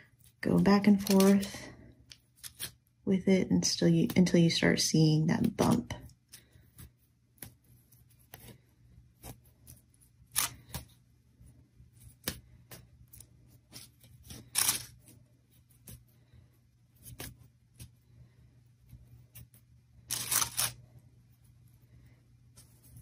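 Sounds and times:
crepe paper crinkling: 0.0s - 2.8s, 13.6s - 15.2s, 20.1s - 20.8s
faint low hum: 0.0s - 23.0s.

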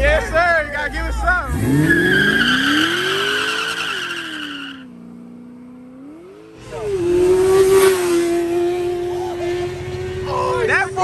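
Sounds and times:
car engine revving: 0.0s - 11.0s
engine at high revs: 1.4s - 11.0s
tyres squealing: 1.6s - 4.9s.

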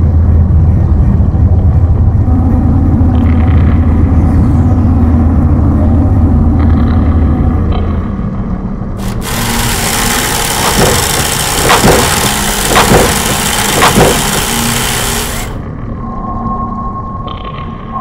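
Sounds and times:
loud rushing hiss: 9.0s - 15.6s.

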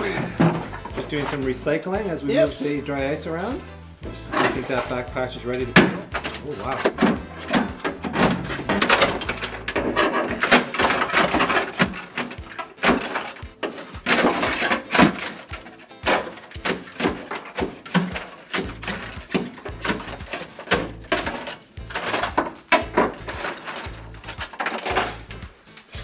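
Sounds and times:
steel scraper scraping metal: 4.1s - 5.0s, 5.7s - 26.0s
frozen mat cracking off metal: 4.1s - 26.0s.

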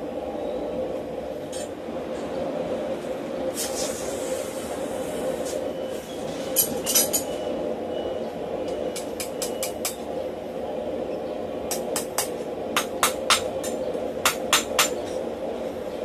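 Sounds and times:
steady hum: 0.0s - 16.0s
hammer striking steel on anvil: 11.7s - 15.0s.

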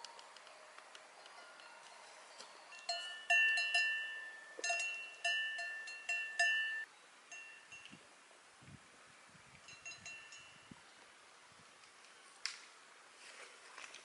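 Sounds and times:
cowbell clanking: 1.4s - 7.9s, 9.7s - 10.6s.

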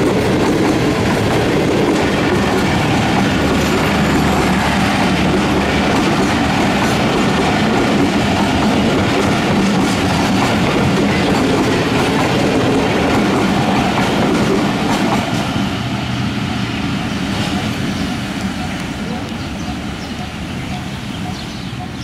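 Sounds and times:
train wheels clattering on rails: 0.0s - 16.1s.

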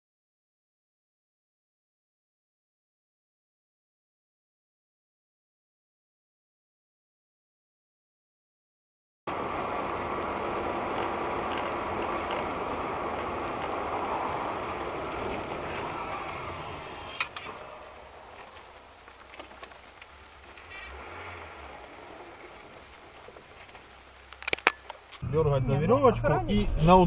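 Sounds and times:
vehicle rushing noise: 9.3s - 27.0s.

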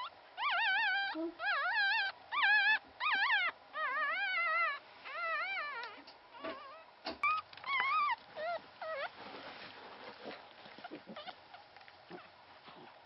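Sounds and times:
puppy crying: 0.0s - 9.1s, 10.8s - 12.3s
rustling: 4.4s - 13.0s.

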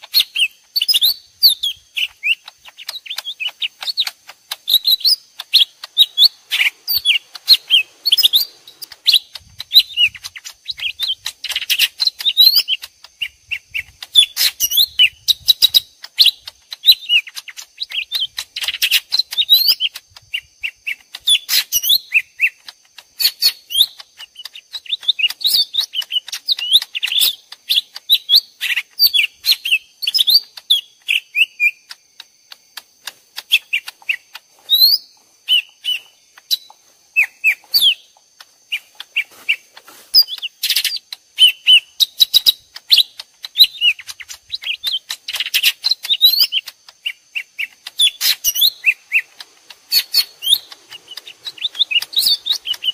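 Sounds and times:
birds chattering chirps: 0.0s - 52.9s.

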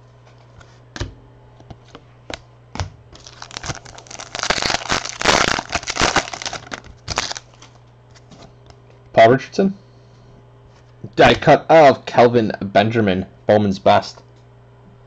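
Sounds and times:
foil wrapper crinkling: 3.1s - 7.8s.

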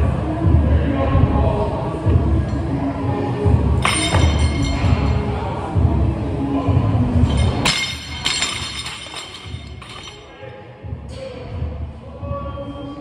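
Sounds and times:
plates clinking on sleeves: 3.8s - 5.0s, 7.2s - 10.3s.

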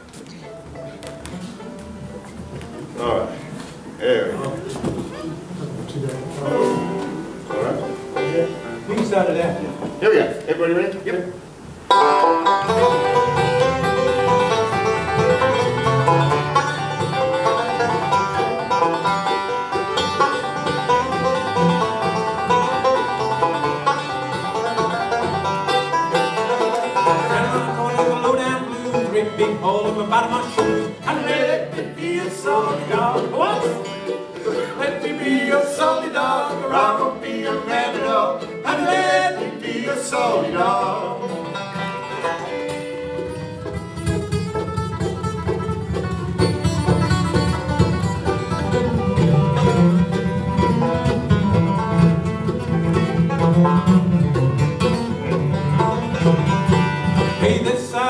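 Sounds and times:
acoustic guitar: 0.0s - 58.0s
mandolin: 0.0s - 58.0s
banjo: 4.6s - 10.2s, 11.0s - 58.0s
fiddle: 11.8s - 57.5s.

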